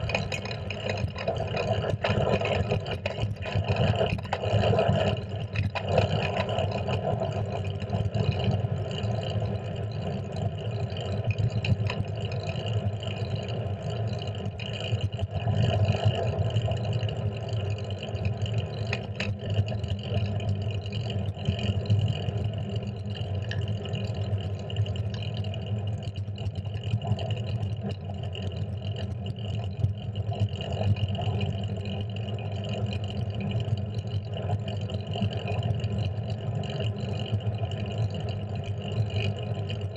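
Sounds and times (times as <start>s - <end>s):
road rumble: 0.0s - 10.6s.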